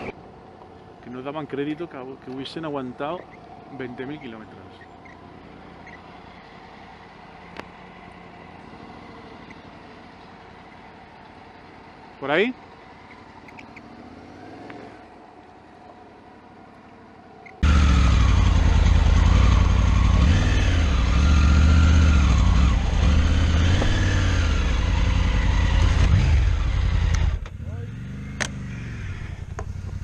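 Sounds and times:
motorcycle engine revving: 4.1 - 15.2, 17.6 - 30.0.

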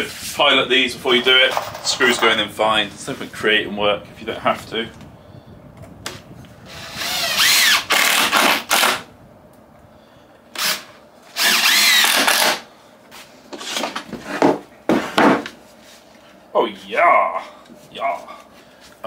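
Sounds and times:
cordless drill driving screws: 6.7 - 9.0, 10.6 - 12.6.

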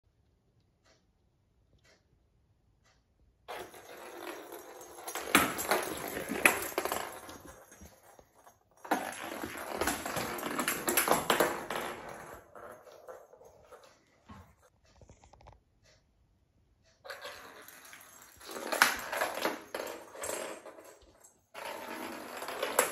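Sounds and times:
plastic ball rolling on floor: 3.5 - 15.4, 17.1 - 22.9.

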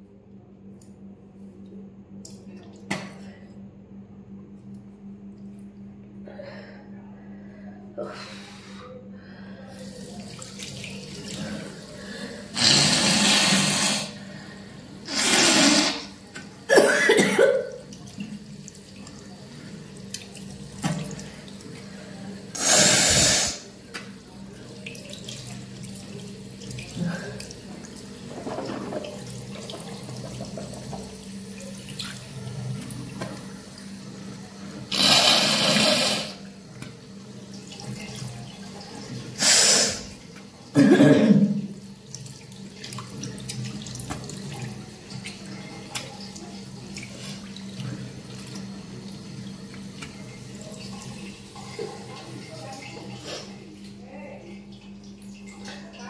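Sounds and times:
running tap water: 9.8 - 56.0
person blowing nose: 12.6 - 14.1, 15.1 - 16.1, 22.6 - 23.6, 34.9 - 36.4, 39.4 - 40.0
person spitting: 12.6 - 14.1, 15.1 - 16.1, 22.6 - 23.6, 34.9 - 36.4.

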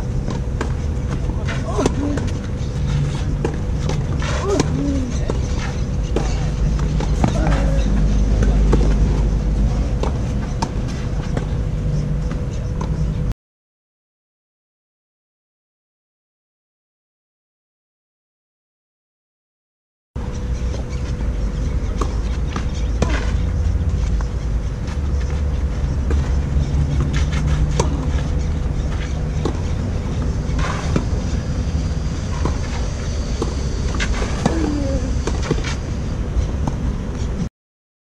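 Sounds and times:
steady low rumble: 0.0 - 13.3, 20.2 - 37.5
racket striking tennis ball: 27.0 - 31.3, 32.3 - 32.8.

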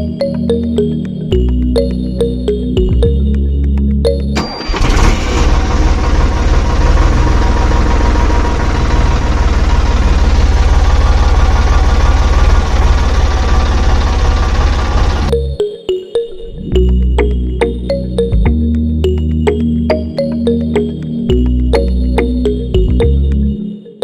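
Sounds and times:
tractor engine idling: 4.1 - 15.3.

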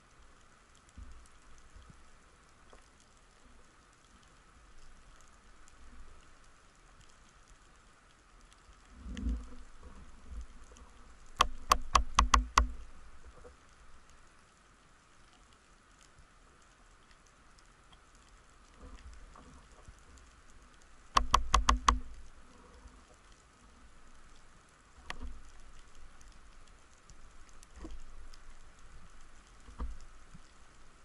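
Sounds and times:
faint underwater crackle: 0.0 - 31.0
sharp clicks underwater: 9.0 - 13.6, 20.7 - 22.6, 25.0 - 30.6.

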